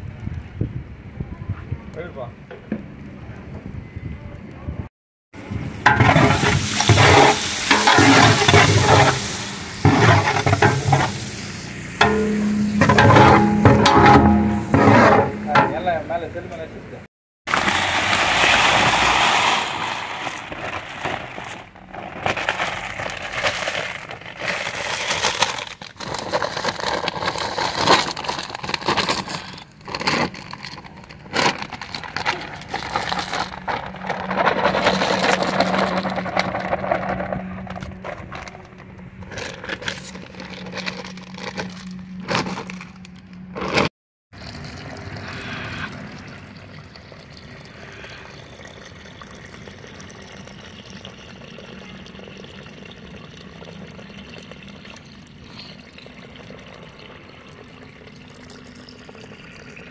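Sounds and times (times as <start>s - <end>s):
water pouring onto rice: 17.5s - 21.6s, 44.4s - 59.9s
rice pouring into metal pot: 17.5s - 30.9s.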